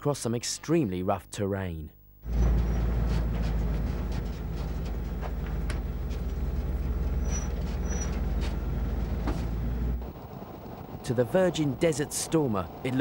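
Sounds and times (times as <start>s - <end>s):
large engine idling: 2.3s - 11.0s.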